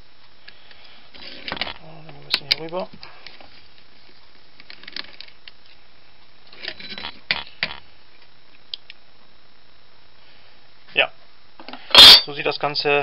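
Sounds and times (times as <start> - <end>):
screwdriver scraping metal: 6.5 - 7.4.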